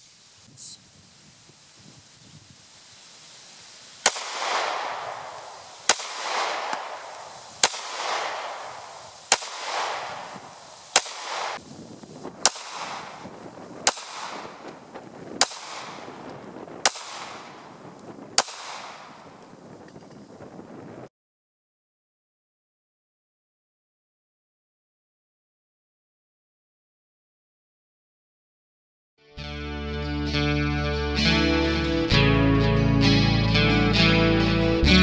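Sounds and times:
pistol shots: 0:04.0 - 0:11.6, 0:12.4 - 0:14.8, 0:15.4 - 0:17.8, 0:18.4 - 0:19.4
rolling gunshot echo: 0:04.0 - 0:11.6, 0:12.4 - 0:14.8, 0:15.4 - 0:19.4.

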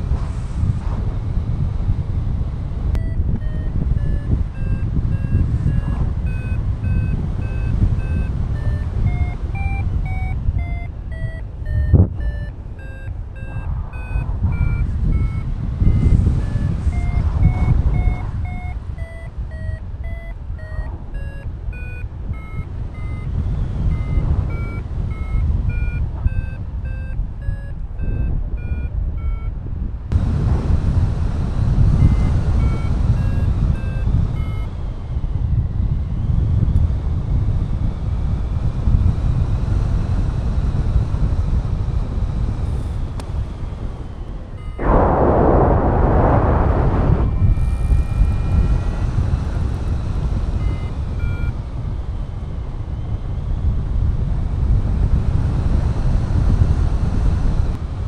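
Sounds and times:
wind rushing on microphone: 0:00.0 - 0:58.0
variometer beeping: 0:02.9 - 0:30.8, 0:31.8 - 0:54.1.

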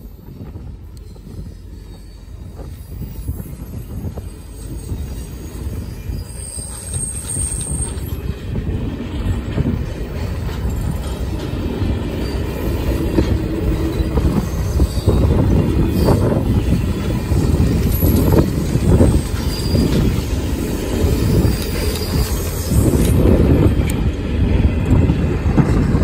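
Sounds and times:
high wheel squeal: 0:00.0 - 0:08.5, 0:11.8 - 0:23.4
train wheels clattering on rails: 0:00.0 - 0:26.0.

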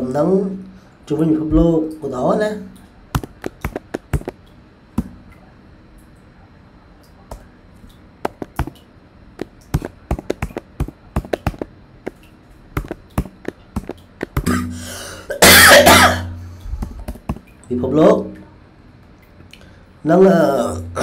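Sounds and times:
noisy sound with low hum: 0:00.0 - 0:21.0
keyboard typing clicks: 0:03.2 - 0:04.4, 0:09.4 - 0:14.4.

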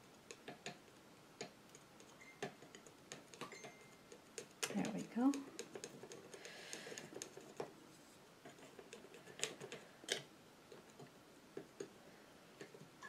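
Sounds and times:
palette knife tapping canvas: 0:02.4 - 0:07.7.

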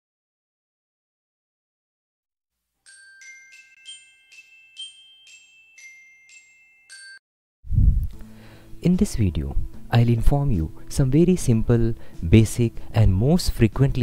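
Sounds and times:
glockenspiel logo jingle: 0:02.9 - 0:07.2.

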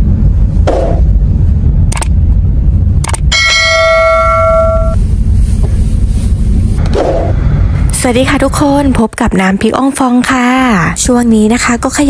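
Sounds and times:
van engine and road rumble: 0:00.0 - 0:12.0
bell chime: 0:03.4 - 0:05.0.

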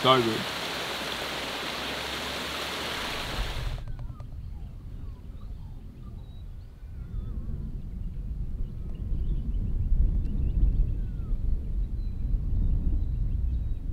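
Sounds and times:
steady rushing hiss: 0:00.0 - 0:03.8
wind rumble on microphone: 0:03.0 - 0:13.9.

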